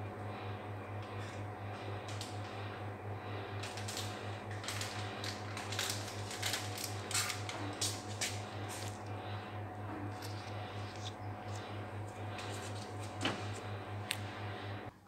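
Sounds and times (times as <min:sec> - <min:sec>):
low pulsing hum: 0:00.0 - 0:15.0
plastic packet crinkling: 0:03.6 - 0:09.0.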